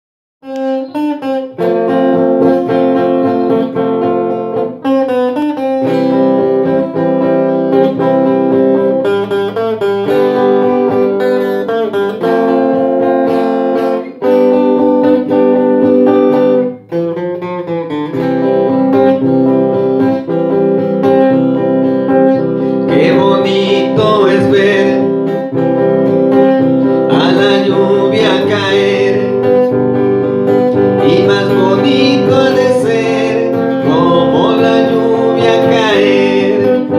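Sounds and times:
electric guitar melody: 0:00.4 - 0:36.9
sustained backing chords: 0:21.5 - 0:36.9.

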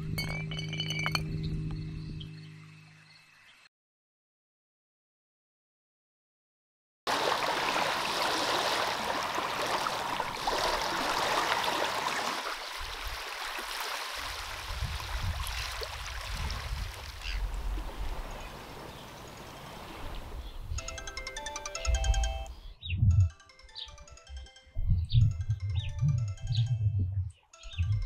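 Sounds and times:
wind rumble on microphone: 0:00.0 - 0:02.4, 0:14.3 - 0:18.7, 0:22.8 - 0:23.3, 0:24.8 - 0:28.0
small waves on gravel shore: 0:07.1 - 0:20.4.

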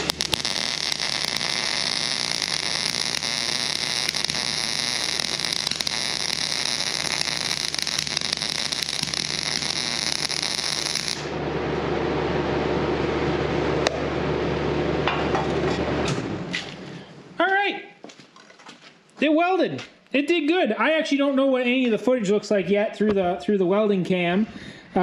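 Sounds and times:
welding arc crackling: 0:00.0 - 0:11.4.

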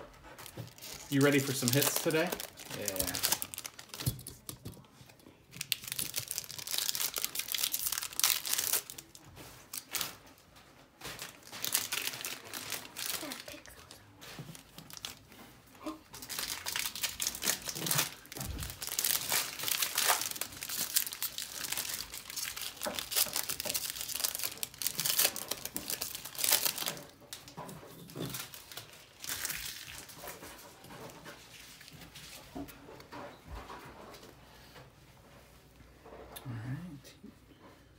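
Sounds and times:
card pack wrappers crinkling: 0:00.5 - 0:04.6, 0:05.5 - 0:10.2, 0:11.0 - 0:15.3, 0:16.2 - 0:30.7.

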